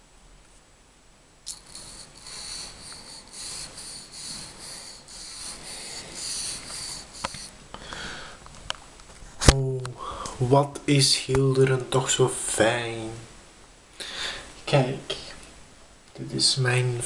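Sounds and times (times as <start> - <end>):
paintbrush bristles rubbing: 1.5 - 7.6.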